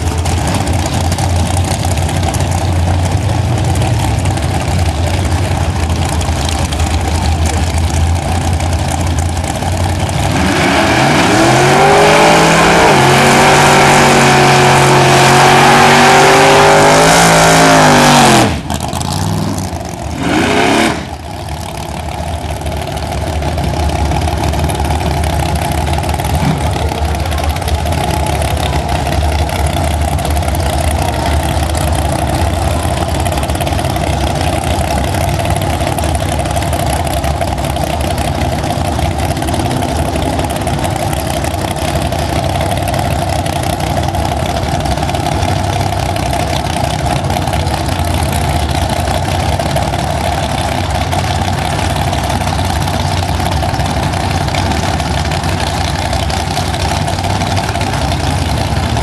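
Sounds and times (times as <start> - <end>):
race car engine idling loudly: 0.0 - 59.0.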